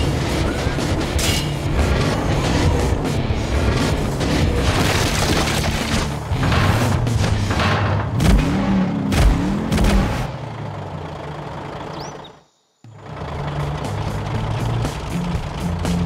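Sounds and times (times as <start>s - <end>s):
background music: 0.0s - 9.5s, 13.2s - 16.0s
cartoon monster truck engine: 0.0s - 16.0s.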